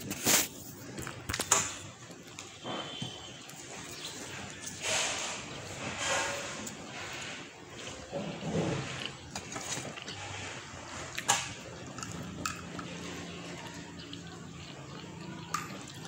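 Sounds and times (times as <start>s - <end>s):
chewing bread: 6.3s - 16.0s.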